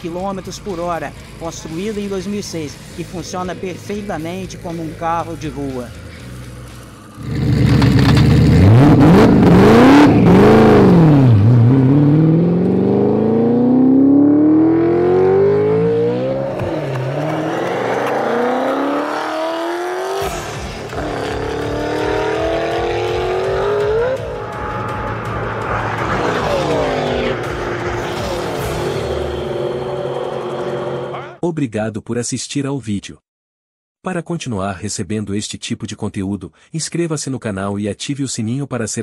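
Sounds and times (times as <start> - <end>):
car engine revving and accelerating: 6.0 - 31.3.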